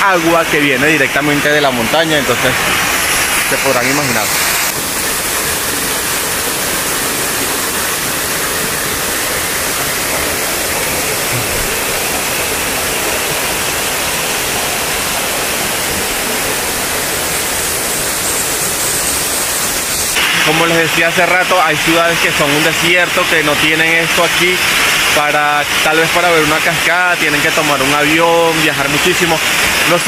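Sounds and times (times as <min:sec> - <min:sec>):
waterfall roaring: 0:00.0 - 0:30.0.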